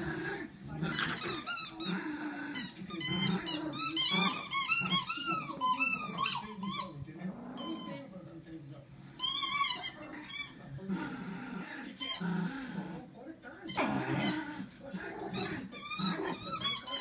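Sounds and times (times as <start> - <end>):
dog growling: 0.0 - 8.0, 9.5 - 13.1, 13.7 - 17.0
high-pitched toy squeaks: 2.6 - 6.9, 9.2 - 10.6, 15.3 - 17.0.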